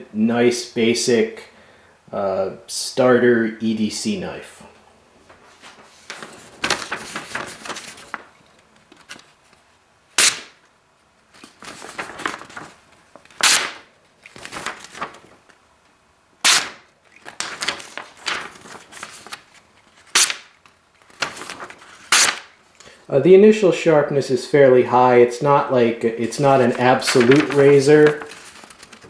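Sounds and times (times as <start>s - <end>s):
crisp paper snaps: 10.2s - 10.6s, 11.4s - 15.6s, 16.4s - 22.5s
knife cutting paper: 13.4s - 15.1s, 16.4s - 16.8s, 20.0s - 20.5s, 21.2s - 22.5s.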